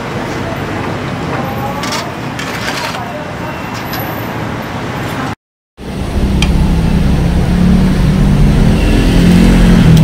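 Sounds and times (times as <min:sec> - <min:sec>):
engine humming low: 0:05.8 - 0:10.0.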